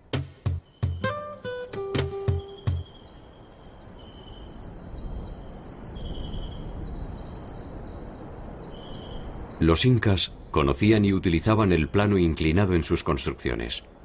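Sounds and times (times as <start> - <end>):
insect chirring: 0.0 - 14.0
faint second insect call: 0.4 - 14.0.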